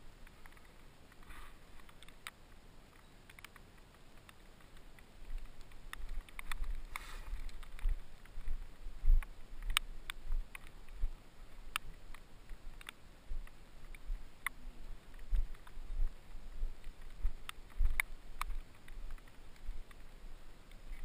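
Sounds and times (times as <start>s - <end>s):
sharp clicks and knocks: 0.2s - 8.6s.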